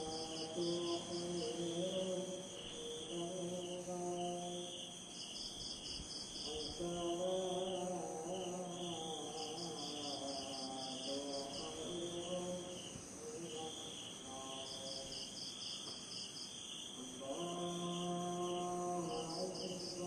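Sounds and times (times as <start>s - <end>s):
distant chanting: 0.0s - 5.0s
insects trilling: 0.0s - 20.0s.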